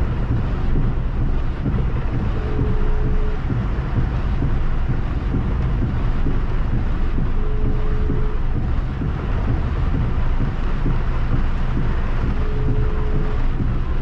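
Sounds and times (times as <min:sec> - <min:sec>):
heavy rain on car: 0:00.0 - 0:14.0
low road and engine rumble: 0:00.0 - 0:14.0
windscreen wiper sweeping: 0:00.0 - 0:14.0
short steady tone: 0:01.7 - 0:03.6, 0:11.8 - 0:14.0.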